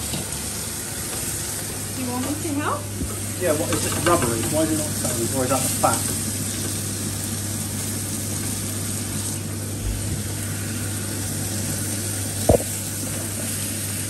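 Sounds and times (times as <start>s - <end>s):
steaks sizzling in a frying pan: 0.0s - 14.0s.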